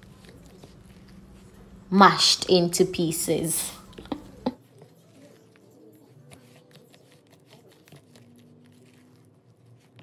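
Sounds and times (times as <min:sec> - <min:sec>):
metal utensil mashing in plastic bowl: 0:03.7 - 0:10.0.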